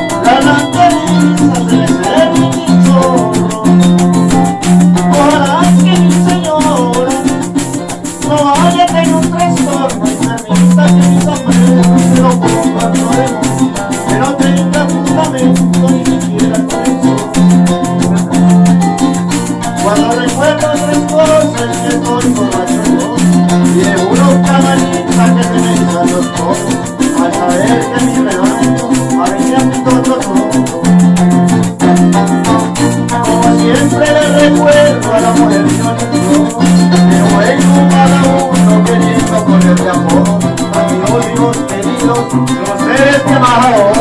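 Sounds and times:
maracas shaking: 0.0s - 44.0s.

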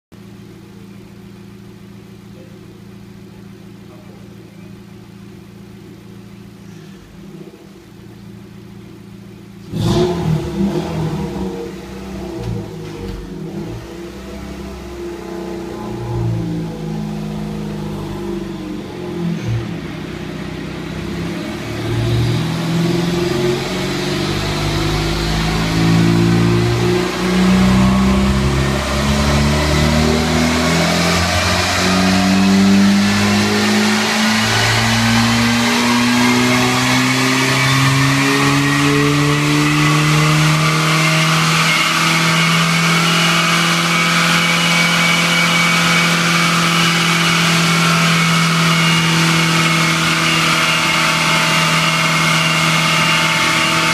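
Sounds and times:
car engine revving: 8.6s - 53.9s
faint rising whine: 13.8s - 38.7s.

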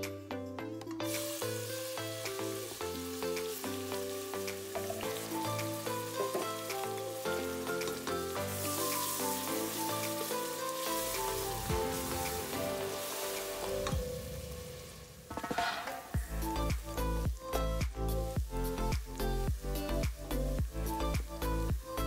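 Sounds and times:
background music: 0.0s - 22.0s
onions sizzling in hot oil: 1.0s - 15.5s.

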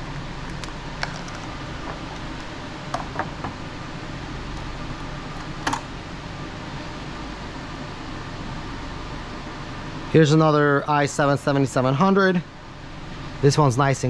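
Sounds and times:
steady fan hum: 0.0s - 14.0s.

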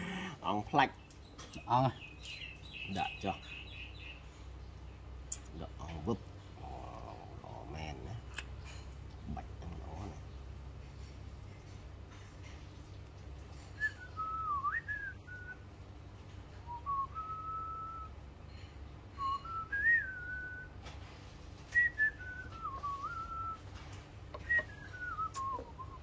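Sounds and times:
person whistling a tune: 13.8s - 15.6s, 16.6s - 18.1s, 19.2s - 20.7s, 21.8s - 23.6s, 24.4s - 26.0s.

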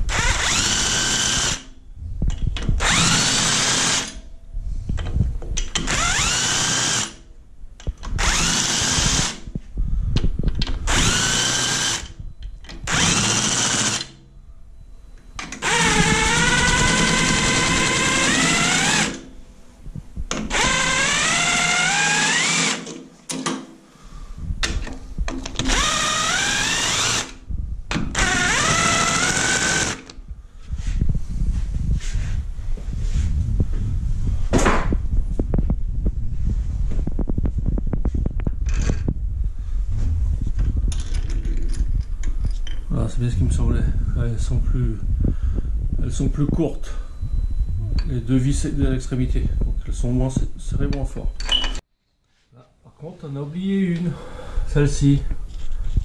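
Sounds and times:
power tool motor whine: 0.1s - 1.7s, 2.8s - 4.2s, 5.8s - 7.2s, 10.9s - 12.2s, 12.8s - 14.1s, 15.6s - 19.2s, 25.6s - 27.4s, 28.1s - 30.1s.

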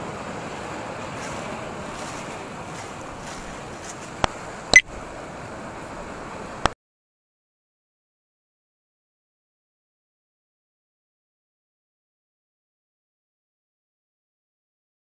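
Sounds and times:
sea surf: 0.0s - 6.8s
wind: 0.0s - 6.8s.

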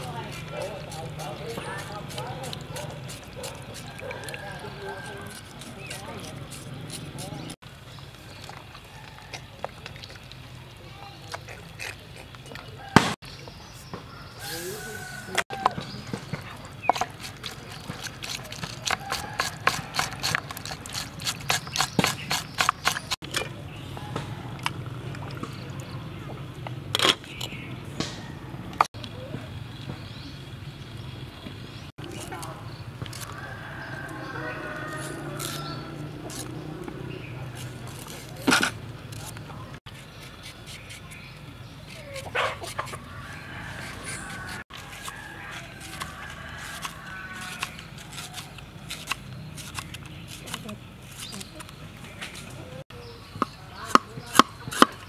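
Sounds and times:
knife scraping meat: 0.0s - 7.6s, 16.9s - 23.2s, 33.1s - 52.6s.

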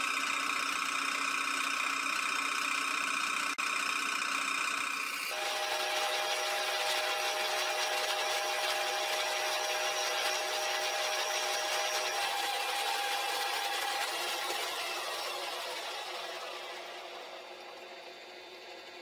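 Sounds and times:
milling machine cutting metal: 0.0s - 19.0s
machine whining tones: 5.0s - 18.9s.

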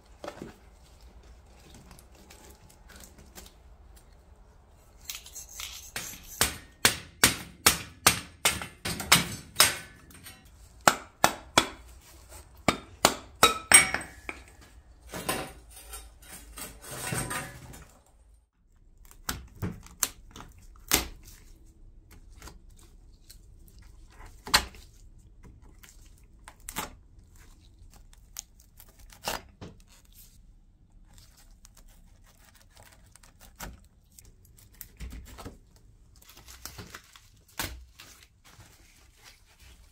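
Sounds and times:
metal tools knocking and clinking: 13.4s - 16.2s.

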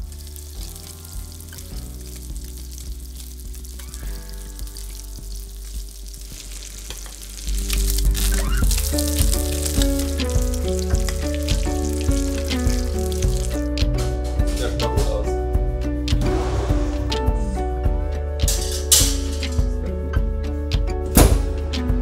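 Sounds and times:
fish sizzling in oil: 0.0s - 13.8s
background music: 0.0s - 22.0s.

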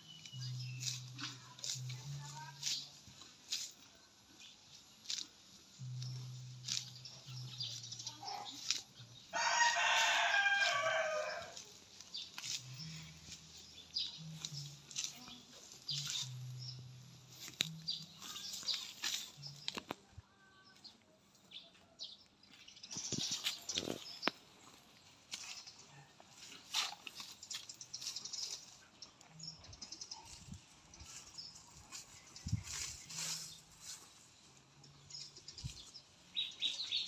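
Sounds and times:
cow tearing and chewing grass: 0.0s - 19.9s, 23.0s - 37.0s
rooster crowing: 9.3s - 11.6s.

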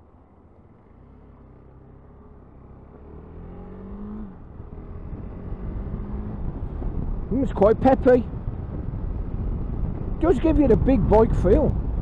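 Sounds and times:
motorcycle engine accelerating: 0.9s - 12.0s.

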